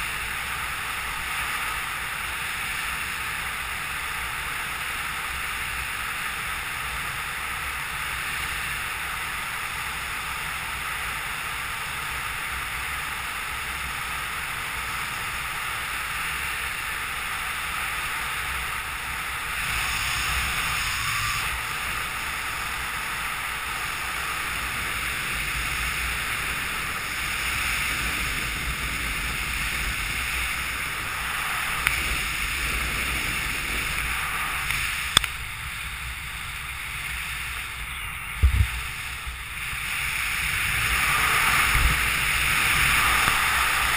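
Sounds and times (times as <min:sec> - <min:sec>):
wind rushing over microphone: 0:14.6 - 0:43.9.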